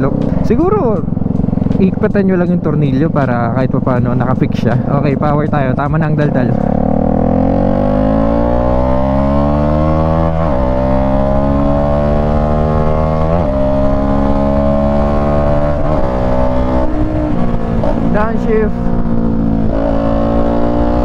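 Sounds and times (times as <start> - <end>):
motorcycle engine accelerating: 0.0 - 21.0.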